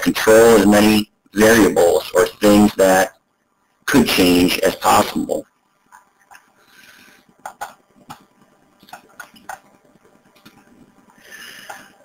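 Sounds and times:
faint room hiss: 0.0 - 12.0
computer mouse clicks: 7.4 - 9.7.

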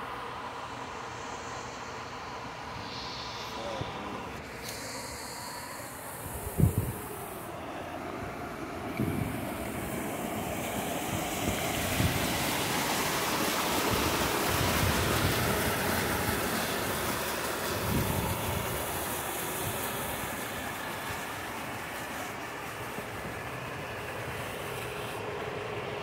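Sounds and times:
wind buffeting microphone: 6.1 - 7.5, 8.4 - 20.4
water rushing down a slide: 8.6 - 25.4.

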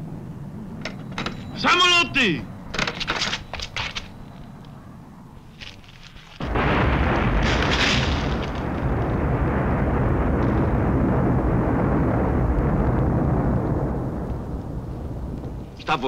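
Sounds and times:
bomb explosion with long rumble: 6.4 - 16.0.

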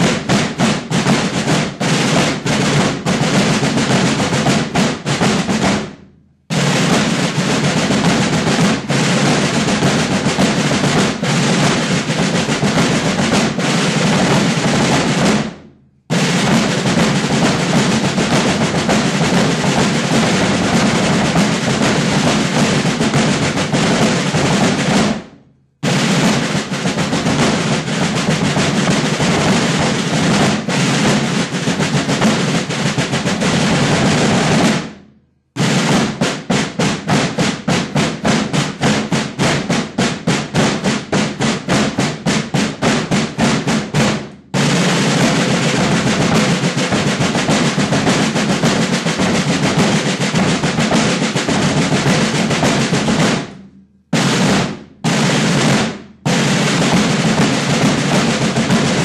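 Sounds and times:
snare drum roll: 0.0 - 59.0
bass drums: 16.4 - 25.0.

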